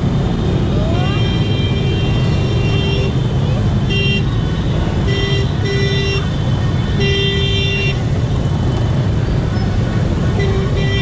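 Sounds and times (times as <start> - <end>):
motorbike engines and traffic rumble: 0.0 - 11.0
horns tooting: 0.5 - 11.0.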